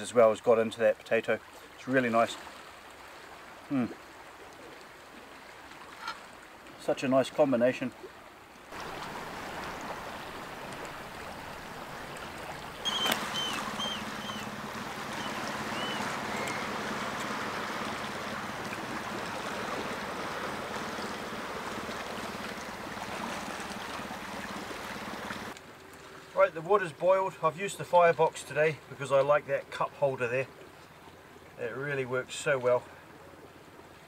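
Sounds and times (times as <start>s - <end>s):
sea water washing among rocks: 8.7s - 25.6s
short high chirps: 12.8s - 14.5s.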